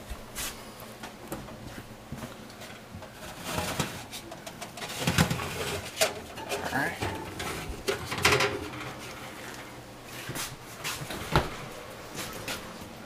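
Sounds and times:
metal baking pan scraping: 3.1 - 9.7.

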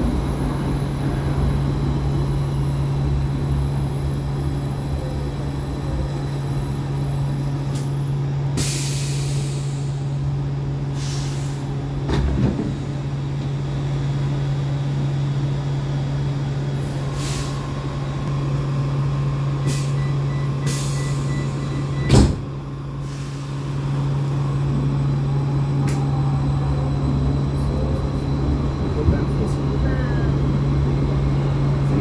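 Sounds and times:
train equipment humming: 0.0 - 32.0
air hissing: 8.6 - 10.2, 10.9 - 11.7, 17.0 - 17.8, 19.7 - 20.0, 23.0 - 24.0
train doors banging shut: 12.0 - 13.0, 21.5 - 22.5
door warning beeping: 19.7 - 22.4.

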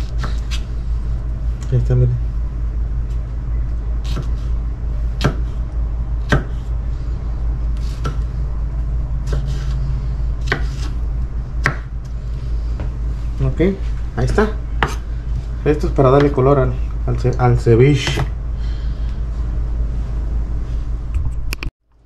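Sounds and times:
steady low hum: 0.0 - 22.0
knife chopping on wooden board: 4.0 - 4.4, 5.2 - 5.6, 6.2 - 6.7, 7.8 - 8.3, 9.2 - 9.8, 10.4 - 11.0, 11.6 - 11.9, 14.8 - 15.1, 18.0 - 18.3.

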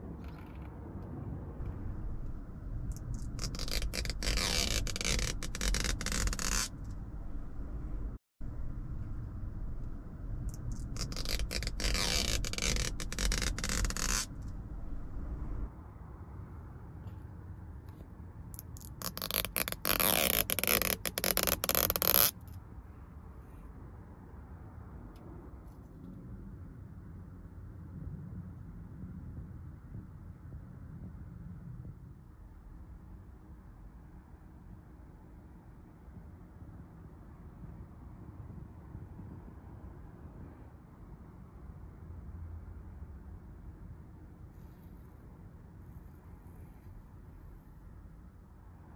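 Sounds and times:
low steady background: 0.0 - 48.9
plastic film peeling: 3.0 - 7.0, 10.6 - 14.4, 18.6 - 22.4.

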